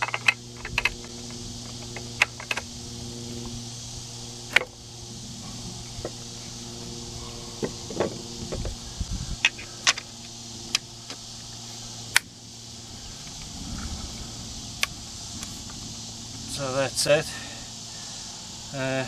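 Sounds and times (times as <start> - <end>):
sharp metal clicks and knocks: 0.0 - 2.7.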